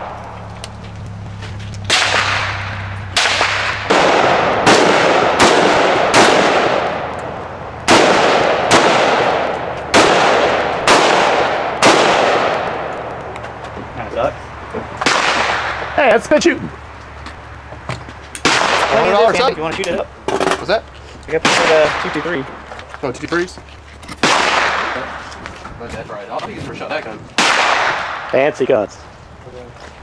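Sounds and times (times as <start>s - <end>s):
rifle shots echoing: 1.8s - 13.4s, 15.0s - 16.0s, 18.4s - 19.4s, 21.4s - 22.6s, 24.2s - 25.3s, 27.4s - 28.4s.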